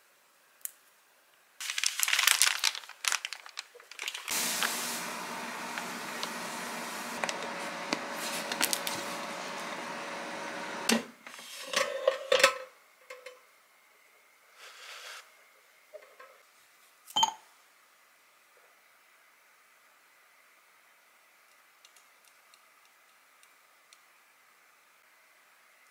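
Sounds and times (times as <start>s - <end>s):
steady hum: 4.3s - 11.1s.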